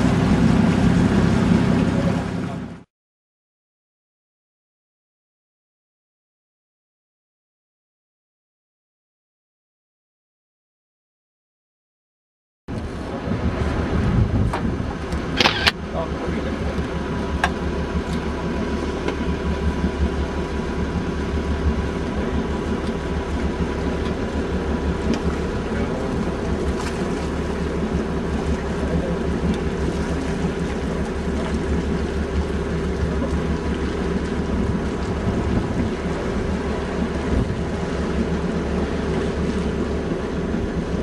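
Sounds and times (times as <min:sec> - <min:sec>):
boat engine low rumble: 0:00.0 - 0:02.9, 0:12.7 - 0:41.0
water around hull: 0:00.0 - 0:02.9, 0:12.7 - 0:41.0.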